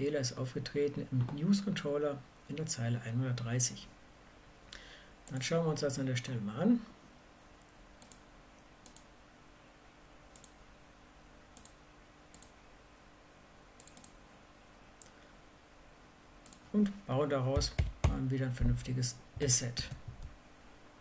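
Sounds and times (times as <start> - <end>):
faint room hiss: 0.0 - 21.0
computer mouse clicking: 8.0 - 8.2, 8.8 - 9.1, 10.3 - 10.6, 11.6 - 12.6, 13.8 - 14.2, 16.4 - 16.6.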